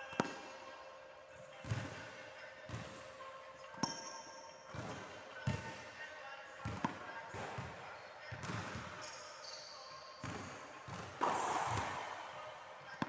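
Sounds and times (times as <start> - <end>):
tennis balls struck with rackets: 0.1 - 0.4, 3.8 - 4.0, 6.7 - 7.7, 10.3 - 13.0.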